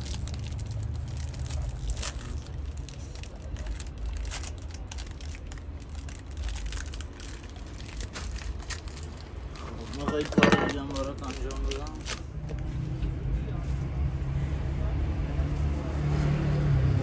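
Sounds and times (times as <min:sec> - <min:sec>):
crinkling clicks and scratches: 0:00.0 - 0:12.6
low street rumble: 0:00.0 - 0:17.0.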